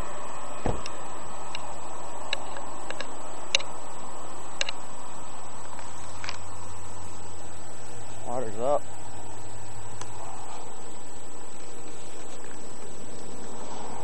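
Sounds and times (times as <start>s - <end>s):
thump: 0.6s - 0.9s
sharp clicks: 2.3s - 3.7s, 4.6s - 4.8s.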